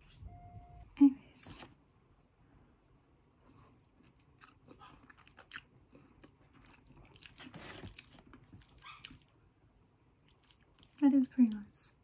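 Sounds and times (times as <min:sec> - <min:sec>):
faint chewing: 0:02.8 - 0:12.0.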